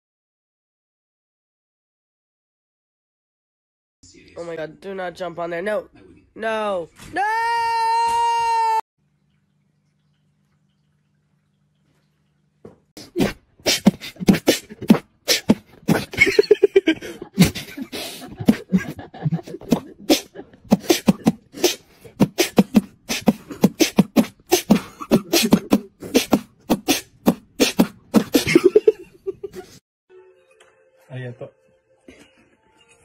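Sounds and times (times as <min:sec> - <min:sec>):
person beatboxing: 0:13.0 - 0:16.2, 0:17.4 - 0:28.7.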